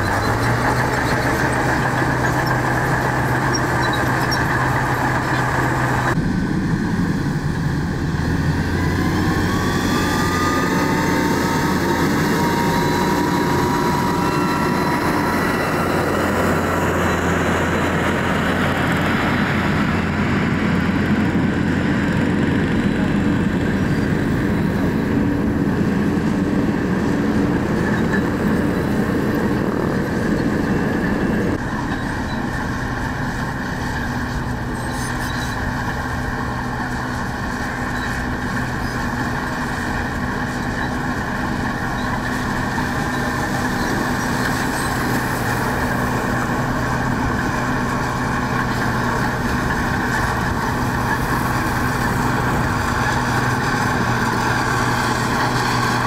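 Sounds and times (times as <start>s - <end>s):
diesel machinery under load: 0.0s - 56.0s
rising whine: 4.8s - 31.6s.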